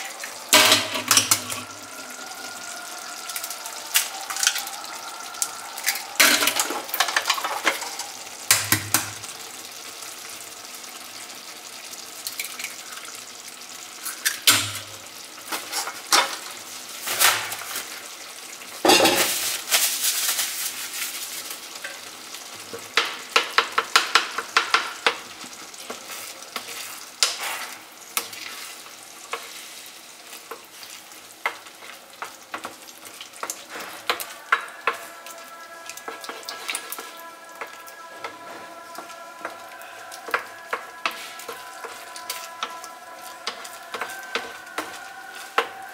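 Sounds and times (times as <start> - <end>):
food sizzling in a frying pan: 0.0 - 45.9
wooden spoon stirring: 23.4 - 45.9.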